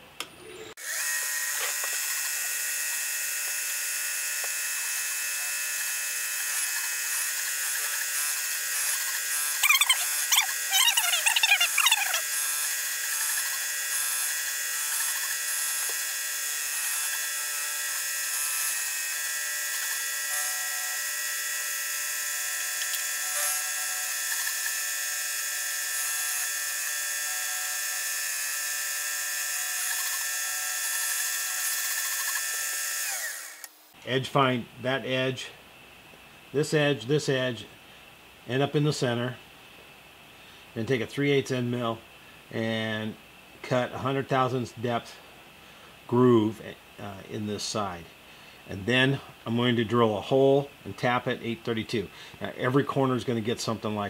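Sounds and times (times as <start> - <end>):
milling machine high-pitched whine: 0.4 - 33.9
wavering metal cutting squeal: 9.0 - 12.3, 23.2 - 24.6.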